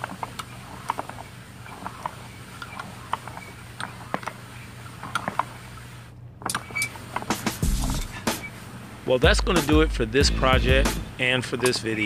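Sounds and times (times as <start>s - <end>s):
metal bar stirring dry material: 0.0s - 5.7s.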